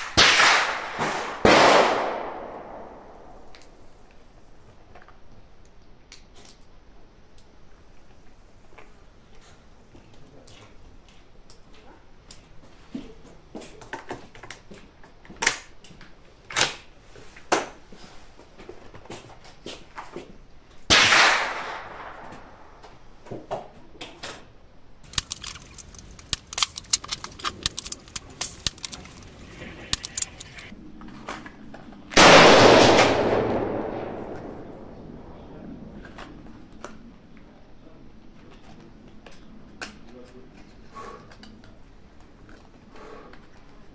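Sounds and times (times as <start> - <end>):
rifle shots: 0.0 - 3.5, 20.9 - 22.7, 32.2 - 35.3
sharp clicks and clatter: 25.0 - 30.7.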